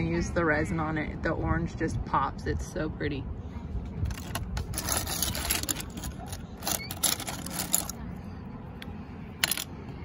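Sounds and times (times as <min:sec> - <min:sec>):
seashells clattering in plastic bucket: 0:04.1 - 0:08.0.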